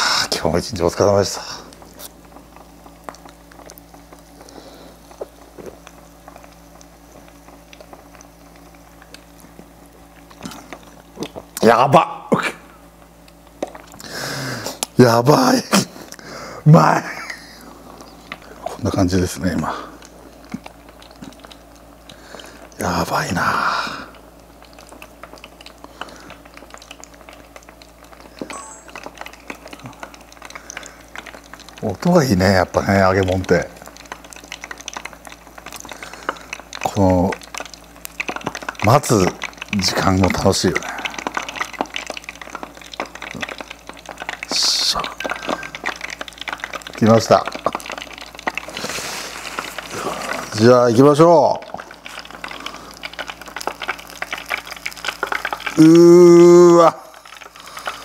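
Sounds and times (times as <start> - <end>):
deep fryer hum: 0.0 - 58.0
oil bubbling and crackling: 0.0 - 58.0
brief high tone: 28.5 - 29.1.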